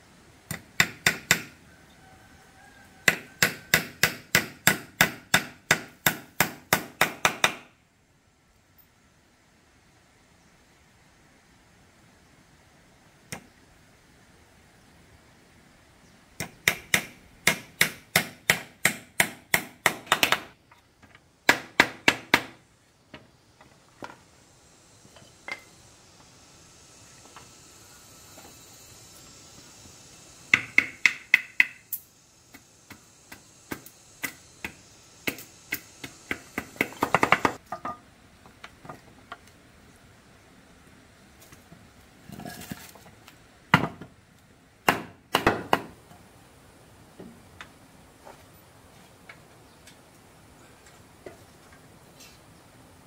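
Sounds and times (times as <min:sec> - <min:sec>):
hand tool chopping wood: 0:44.9 - 0:45.9.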